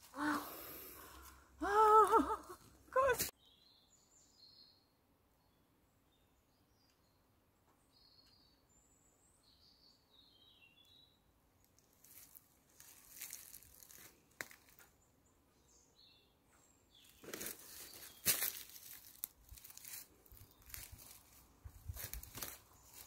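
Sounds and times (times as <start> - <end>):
footsteps in dry leaves: 12.0 - 14.8, 17.1 - 23.0.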